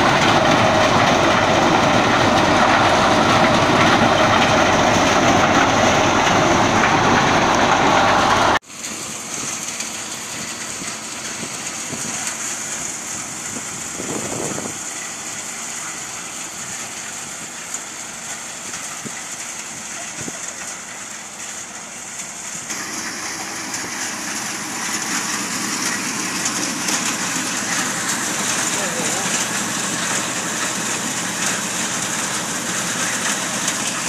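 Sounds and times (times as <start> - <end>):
thresher drum rushing: 0.0 - 8.6, 22.7 - 34.0
low engine hum: 0.0 - 34.0.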